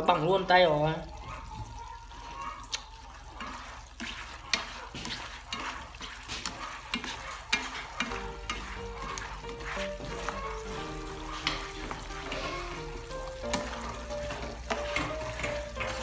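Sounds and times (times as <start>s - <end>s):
syrup bubbling and sizzling: 0.0s - 16.0s
chopsticks clicking against pan: 6.4s - 9.4s, 11.3s - 12.4s.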